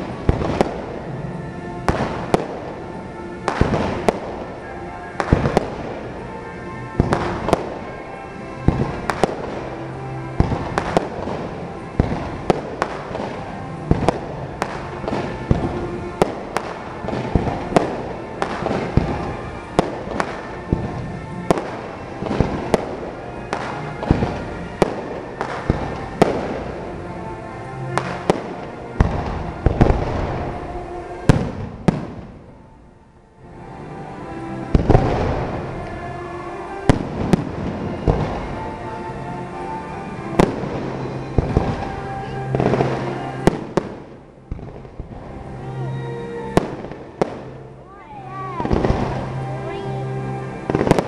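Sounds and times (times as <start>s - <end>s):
fireworks bangs: 0.0s - 32.7s, 33.5s - 51.0s
music playing: 0.0s - 51.0s.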